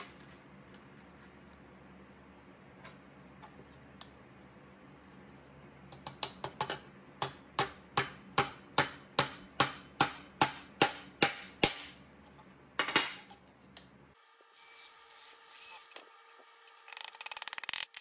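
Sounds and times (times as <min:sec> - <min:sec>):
hammer striking metal on anvil: 0:07.2 - 0:12.0.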